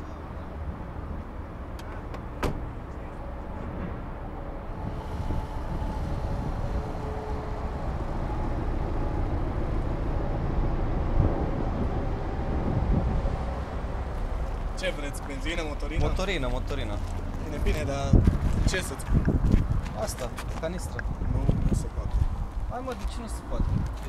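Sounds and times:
car door shutting: 0:01.8 - 0:02.8
low rumble: 0:02.6 - 0:24.0.

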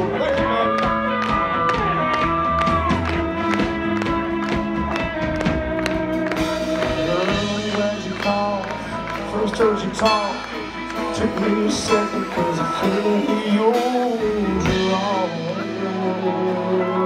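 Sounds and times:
drum beat: 0:00.0 - 0:08.6.

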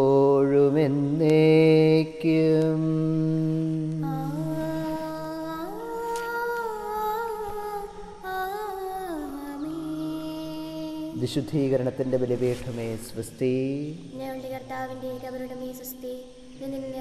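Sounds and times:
man chanting: 0:00.0 - 0:05.2, 0:10.9 - 0:14.2.

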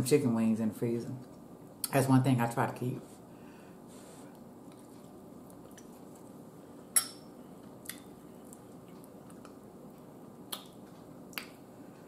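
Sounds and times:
metal fork clinking in a bowl: 0:07.0 - 0:07.3.

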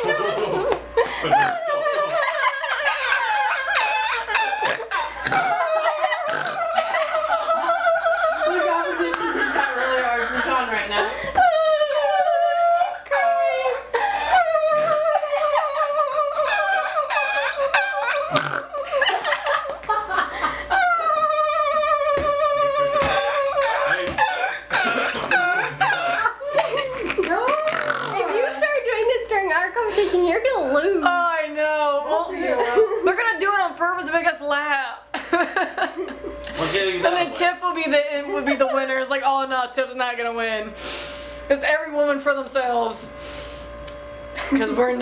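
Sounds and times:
person giggling: 0:00.0 - 0:12.9, 0:13.8 - 0:28.6.

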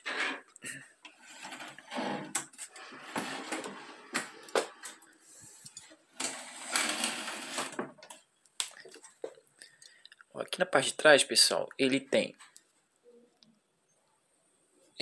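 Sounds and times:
scraping and rubbing handling noise: 0:00.0 - 0:08.2.

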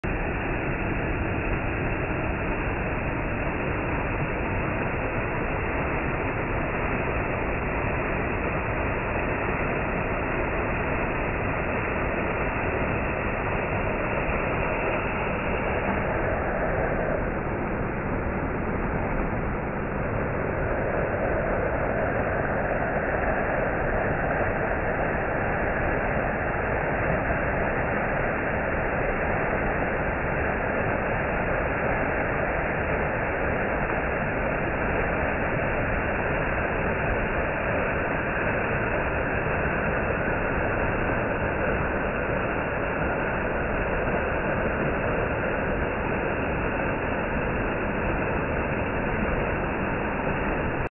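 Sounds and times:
small waterfall rushing: 0:20.0 - 0:50.9.

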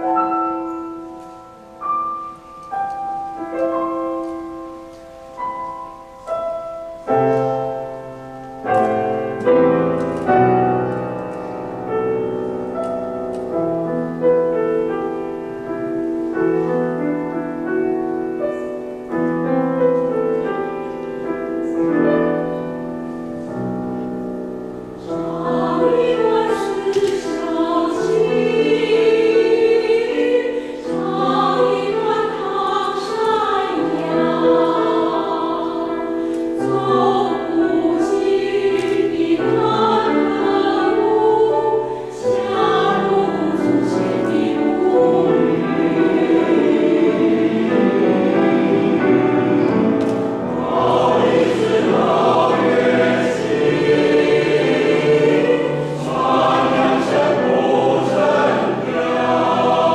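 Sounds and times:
piano accompaniment: 0:00.0 - 0:59.9
mixed choir singing: 0:24.9 - 0:59.9.

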